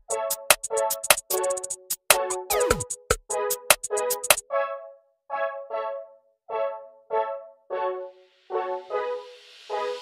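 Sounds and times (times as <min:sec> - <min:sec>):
electronic music with choppy beat: 0:00.0 - 0:04.5.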